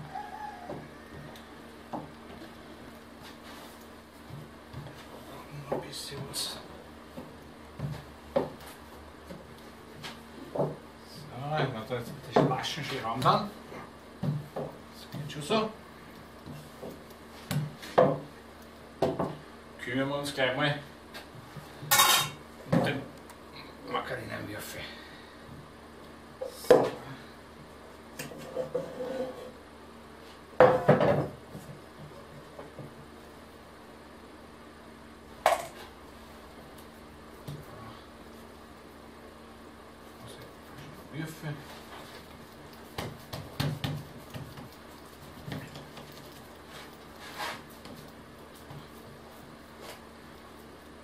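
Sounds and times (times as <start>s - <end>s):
steady low hum: 0.0s - 51.0s
hands patting dough: 40.2s - 51.0s.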